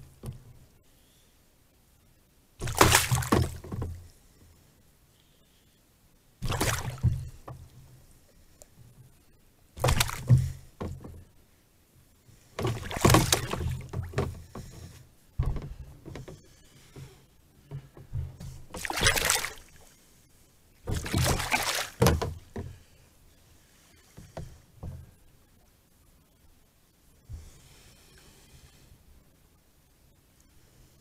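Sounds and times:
splashing and knocking: 0:02.6 - 0:04.1, 0:06.4 - 0:07.8, 0:09.8 - 0:11.3, 0:12.6 - 0:19.8, 0:20.8 - 0:22.9.

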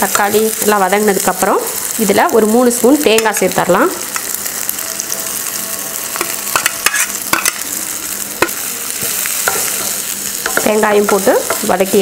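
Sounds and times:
food sizzling in oil: 0:00.0 - 0:12.0
spatula scraping a pan: 0:06.2 - 0:07.6.

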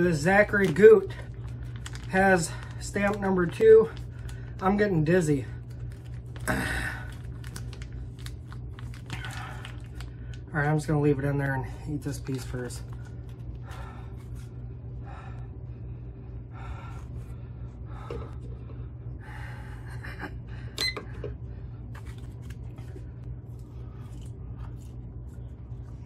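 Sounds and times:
steady low hum: 0:00.0 - 0:26.0
plastic bag rustling: 0:00.1 - 0:04.7, 0:07.1 - 0:10.4
chewing with mouth noises: 0:22.4 - 0:26.0.

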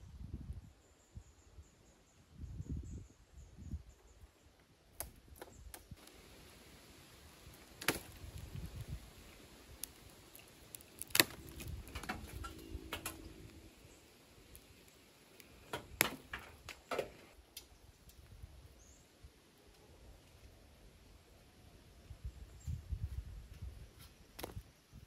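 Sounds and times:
low hum: 0:10.9 - 0:16.5.

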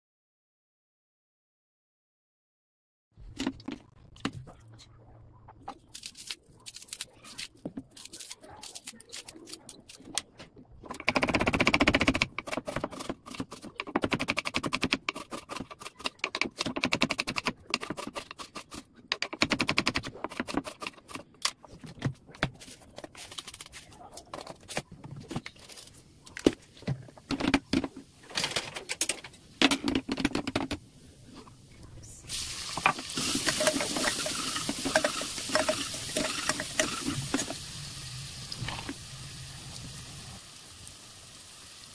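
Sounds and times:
hot oil crackling and spitting: 0:32.3 - 0:41.9.

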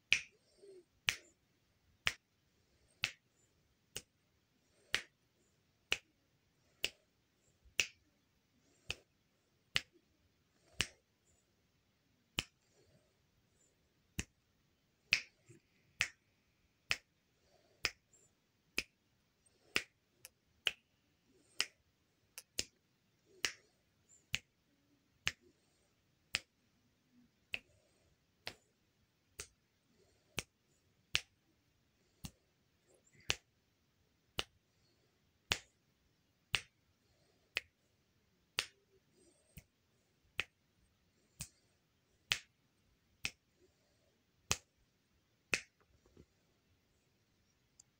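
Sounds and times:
fingers snapping: 0:00.1 - 0:01.3, 0:02.9 - 0:03.2, 0:04.8 - 0:05.2, 0:06.7 - 0:07.0, 0:10.6 - 0:11.0, 0:16.9 - 0:17.2, 0:18.8 - 0:20.8, 0:21.4 - 0:21.8, 0:22.4 - 0:23.7, 0:26.3 - 0:26.5, 0:34.3 - 0:34.5, 0:35.4 - 0:35.7, 0:36.5 - 0:36.8, 0:38.5 - 0:39.7, 0:42.3 - 0:42.5, 0:44.5 - 0:44.7, 0:45.5 - 0:45.8.

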